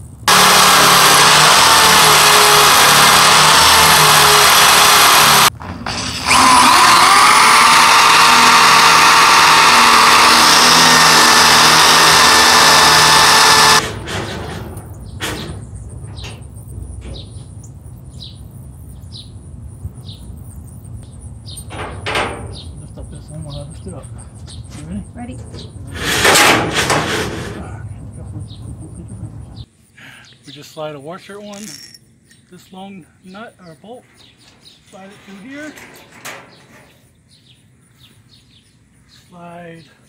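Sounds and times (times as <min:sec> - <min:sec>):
electric drill boring through metal: 0:00.3 - 0:14.6.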